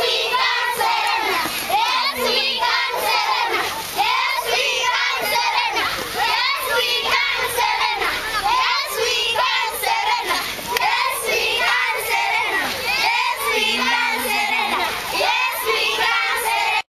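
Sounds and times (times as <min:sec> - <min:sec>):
children shouting and singing: 0:00.0 - 0:16.8.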